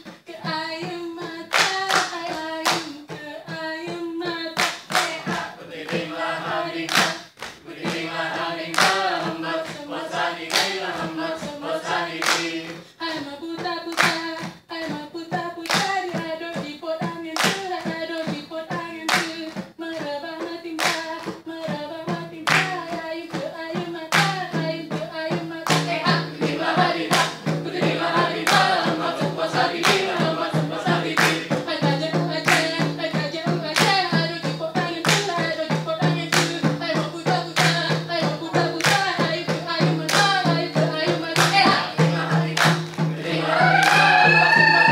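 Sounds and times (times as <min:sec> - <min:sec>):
hands clapping: 0:01.5 - 0:03.2, 0:04.6 - 0:13.2, 0:13.9 - 0:15.0, 0:15.6 - 0:16.7, 0:17.4 - 0:18.4, 0:19.1 - 0:20.1, 0:20.8 - 0:21.4, 0:22.4 - 0:23.0, 0:24.1 - 0:24.5, 0:25.6 - 0:44.9
group singing in unison: 0:04.4 - 0:16.5, 0:22.1 - 0:44.9.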